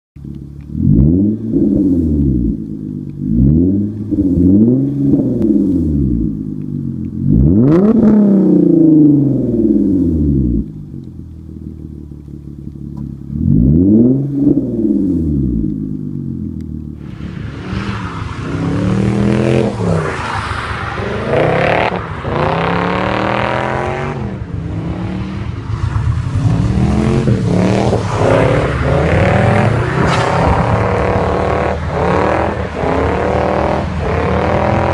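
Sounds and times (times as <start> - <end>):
car engine revving: 0.2 - 34.9
vee eight engine revving while drifting: 3.2 - 6.3, 7.2 - 10.6, 13.3 - 15.6, 17.4 - 20.2, 20.9 - 25.5, 26.2 - 34.9.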